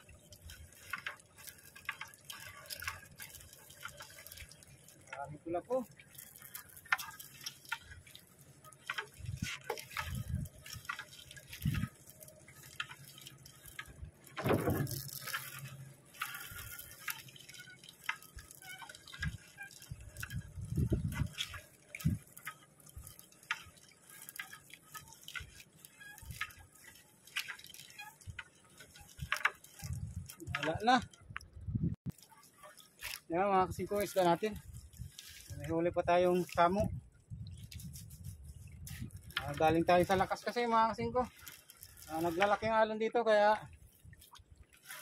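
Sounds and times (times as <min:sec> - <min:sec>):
net clicking and rustling: 0:00.0 - 0:42.8, 0:43.4 - 0:45.0
water dripping and splashing: 0:00.0 - 0:45.0
dull thump: 0:14.4 - 0:15.0.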